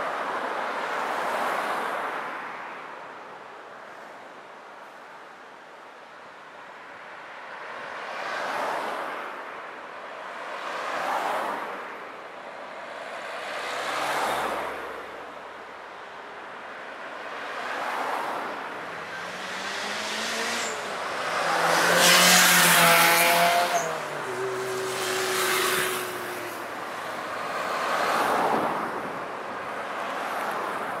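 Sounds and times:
cars passing: 7.4s - 31.0s.

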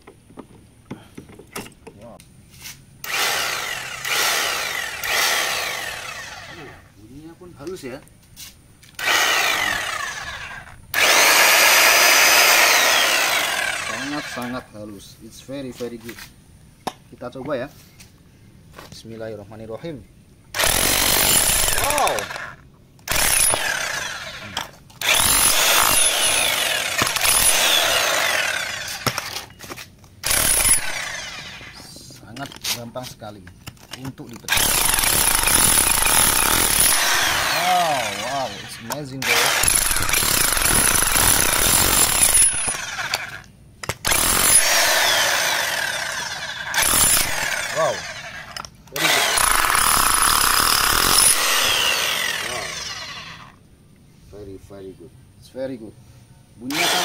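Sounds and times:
electric demolition hammer running: 3.0s - 6.6s, 9.0s - 14.4s, 20.6s - 29.4s, 30.2s - 31.8s, 34.5s - 43.4s, 44.0s - 53.5s, 56.7s - 57.0s.

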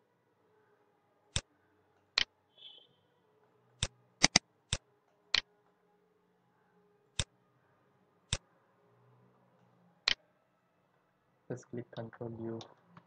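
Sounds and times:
computer mouse clicking: 3.8s - 4.8s.

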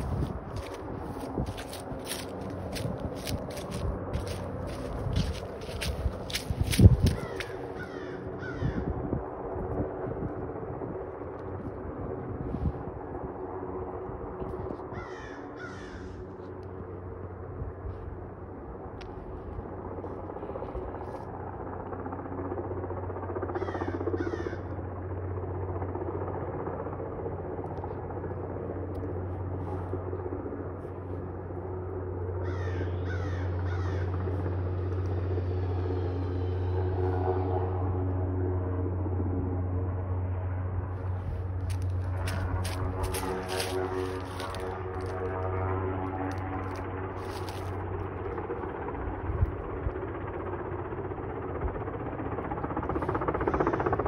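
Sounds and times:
helicopter drone: 0.0s - 54.0s
crow cawing: 3.5s - 8.9s, 14.9s - 16.3s, 23.5s - 24.7s, 32.4s - 34.3s.

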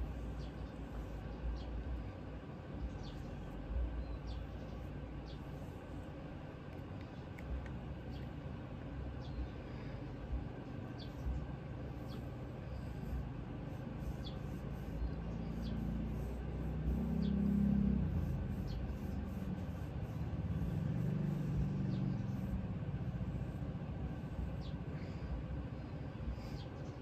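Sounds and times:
tissue rubbing on metal: 13.0s - 24.7s.

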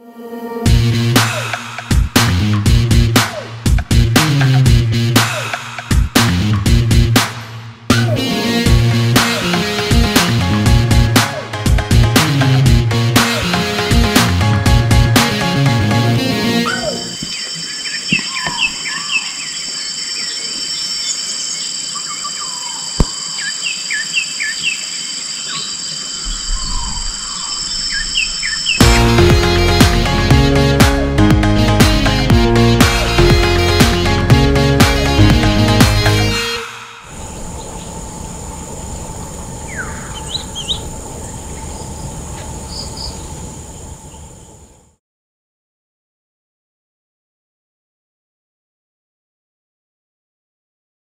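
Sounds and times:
birds chirping: 16.4s - 29.7s, 37.1s - 44.9s
insects buzzing high-pitched: 16.4s - 30.2s, 36.7s - 44.7s
low rumble: 37.1s - 44.8s.

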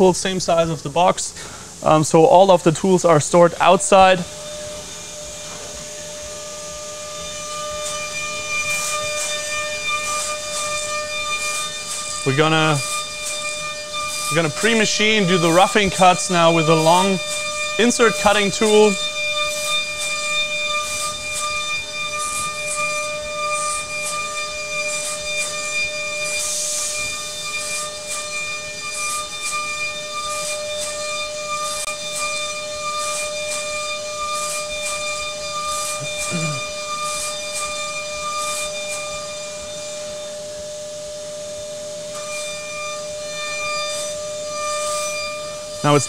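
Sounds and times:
milling spindle high whine: 0.0s - 46.0s
coolant spray hiss: 26.3s - 27.0s.

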